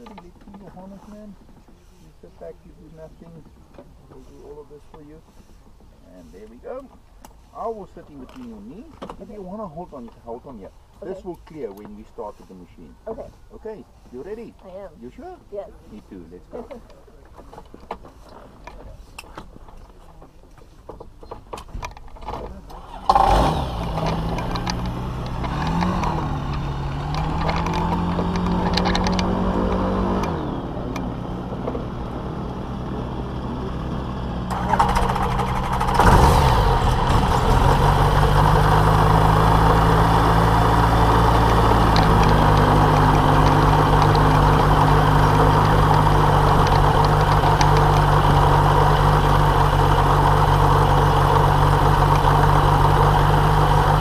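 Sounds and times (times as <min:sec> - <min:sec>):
microlight engine revving: 0:22.7 - 0:54.0.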